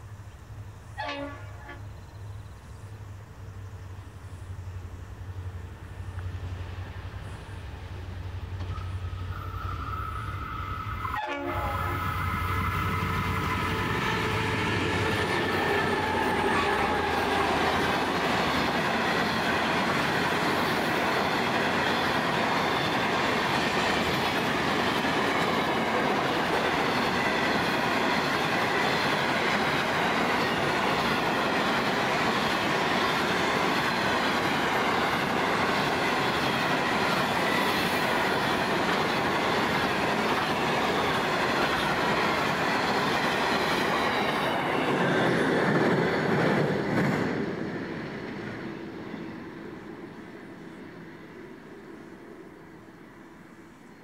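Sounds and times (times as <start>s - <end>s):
diesel locomotives passing: 0.0s - 54.0s
faint wheel squeal: 8.6s - 11.2s.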